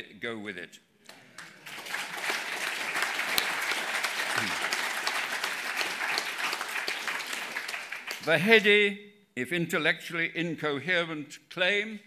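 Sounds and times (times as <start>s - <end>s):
audience applauding: 1.1s - 8.4s.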